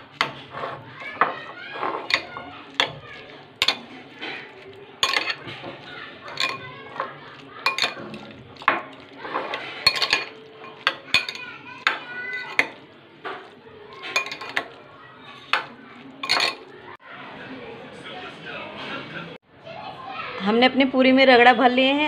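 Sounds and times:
metal spoon clinking on glass bowl: 1.2s - 14.8s, 15.4s - 16.7s.

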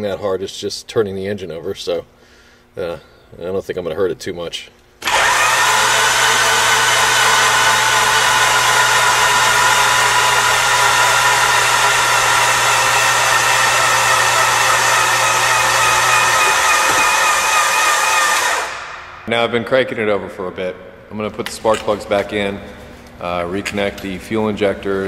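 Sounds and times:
starter motor cranking engine: 5.0s - 18.7s.

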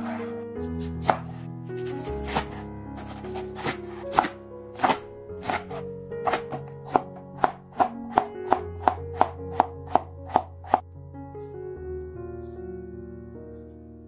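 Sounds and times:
background music: 0.0s - 14.0s
knife chopping on wooden board: 1.0s - 1.4s, 2.2s - 10.8s.

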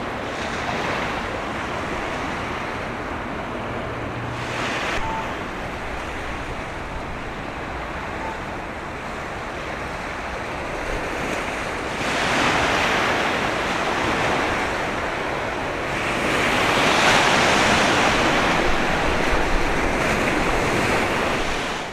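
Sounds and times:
waves washing on shore: 0.0s - 21.9s
wind: 0.0s - 21.9s.

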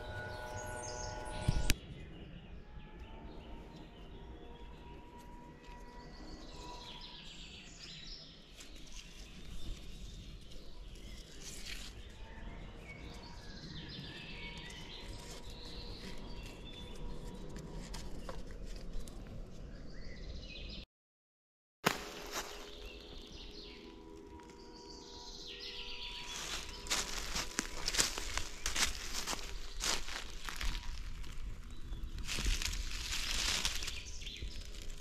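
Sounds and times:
birds chirping and calling: 22.4s - 34.9s.

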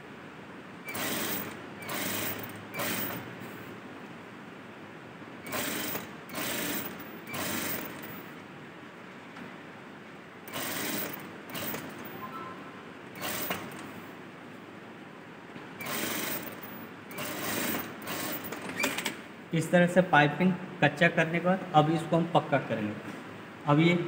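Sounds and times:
sewing machine stitching: 0.9s - 3.3s, 5.4s - 8.2s, 10.5s - 12.2s, 13.2s - 13.9s, 15.8s - 19.2s.

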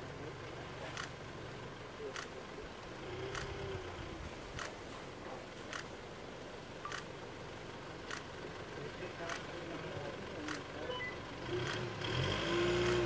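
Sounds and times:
diesel engine idling: 0.0s - 13.0s
sharp clicks: 3.3s - 3.6s, 4.5s - 4.8s.

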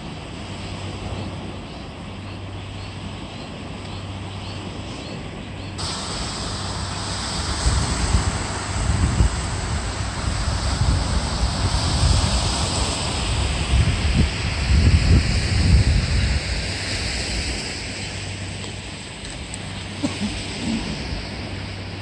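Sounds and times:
low steady hum: 0.0s - 22.0s
wind gusts on microphone: 0.0s - 22.0s
water pouring down spillway: 5.8s - 15.7s.

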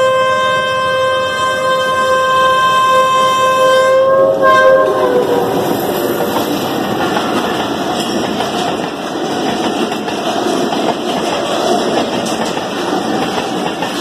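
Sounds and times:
locomotive horn blasts: 0.0s - 5.6s
train coaches rumbling and clattering: 0.0s - 14.0s.

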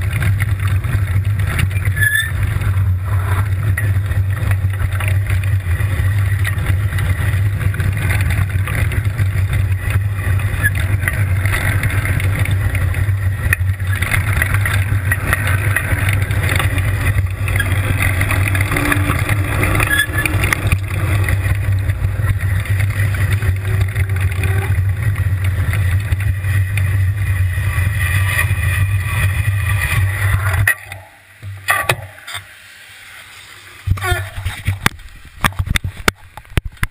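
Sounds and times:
tyres hissing on wet asphalt: 32.1s - 35.4s.

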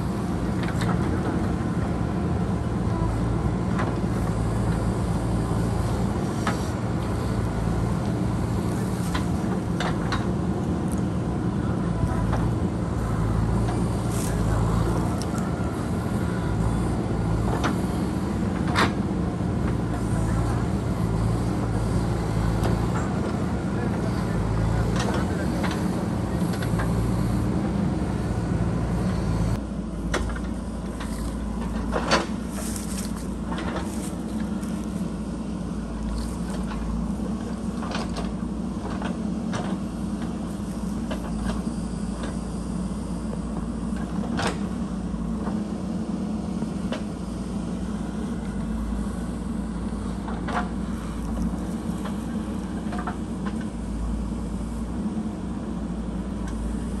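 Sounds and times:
diesel engine running: 0.0s - 57.0s
digger bucket clanking: 2.9s - 40.4s.

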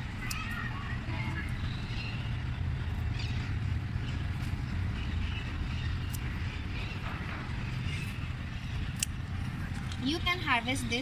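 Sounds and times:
low rumble of traffic or wind: 0.0s - 11.0s
scissors snipping stems: 8.9s - 10.2s.

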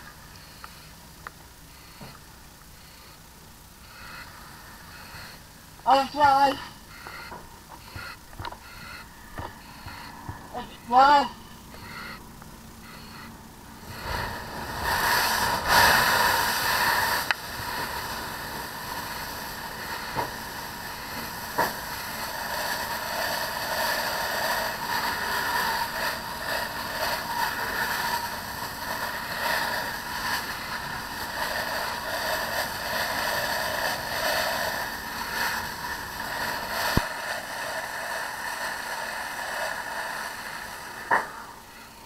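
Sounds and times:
fire hose spraying water: 13.6s - 42.0s.

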